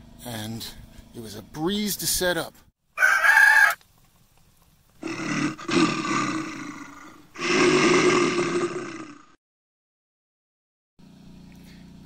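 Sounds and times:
large animal roaring: 5.0 - 9.4.

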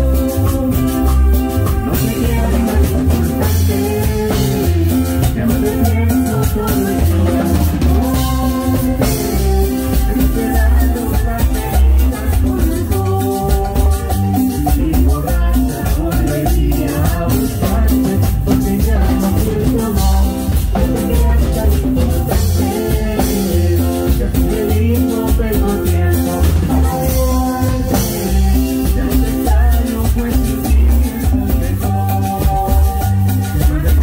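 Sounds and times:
latin dance band: 0.0 - 34.0
scraped metal guira rhythm: 0.0 - 34.0
woman singing: 0.0 - 34.0.

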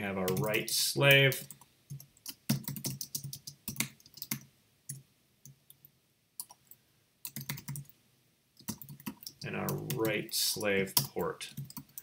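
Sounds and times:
typing on a computer keyboard: 1.4 - 5.0, 6.4 - 7.9, 8.6 - 10.2, 11.0 - 12.0.

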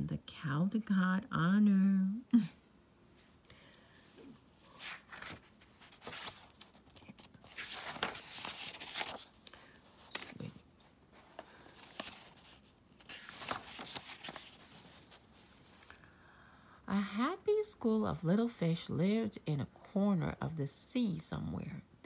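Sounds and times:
paper pages rustling: 4.6 - 16.0.

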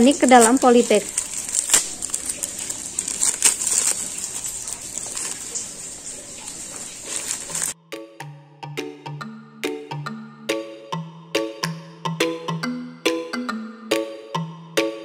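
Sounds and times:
plastic bag crinkling: 0.0 - 7.8.

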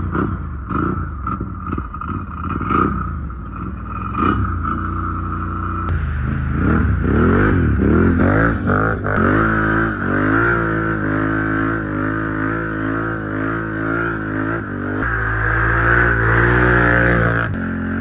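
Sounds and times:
atv engine revving: 0.0 - 18.0.

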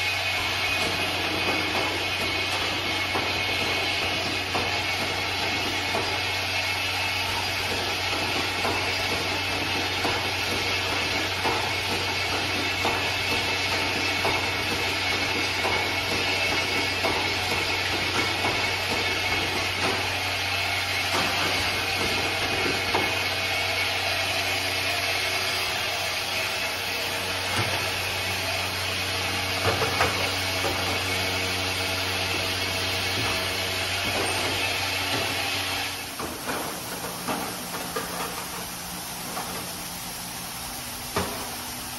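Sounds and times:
machine hiss: 0.0 - 41.9.

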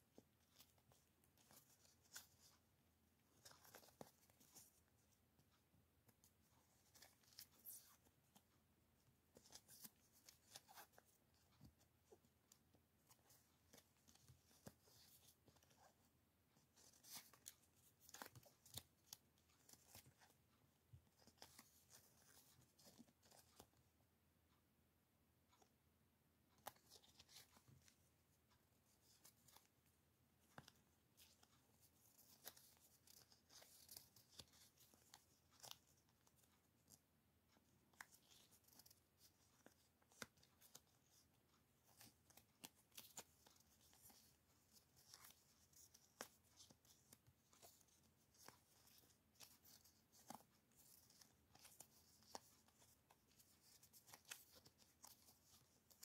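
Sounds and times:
stickers peeled and rustling: 41.8 - 56.0.

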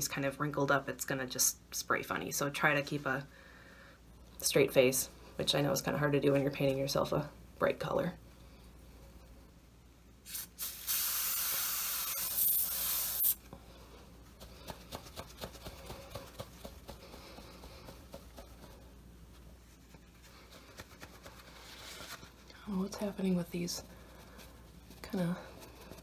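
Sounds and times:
aerosol spray hissing: 10.3 - 13.4.

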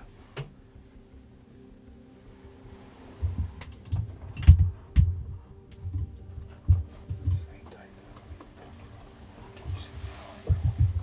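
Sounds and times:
faint steady hum: 0.0 - 11.0
muffled handling thumps: 9.6 - 11.0.

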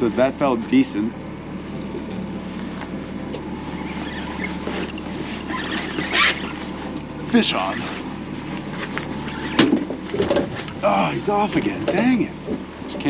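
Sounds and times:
outboard motor idling: 0.0 - 13.0.

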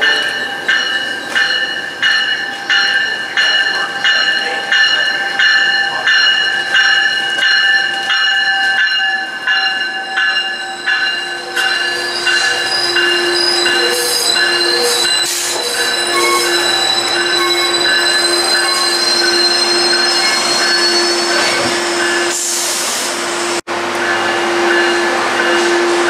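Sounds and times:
rhythmic train wheel clack: 0.0 - 22.5, 23.9 - 26.0
train wheels squealing: 9.9 - 23.0.

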